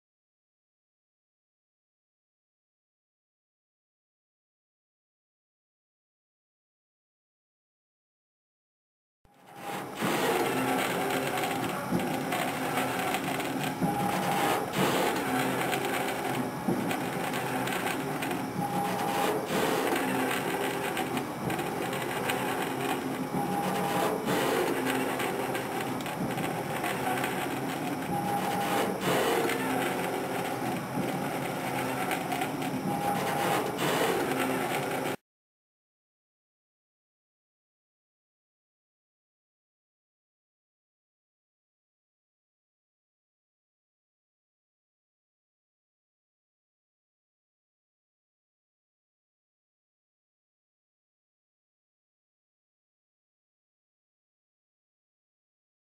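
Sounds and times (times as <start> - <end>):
pumpjack mechanical hum: 9.4 - 35.1.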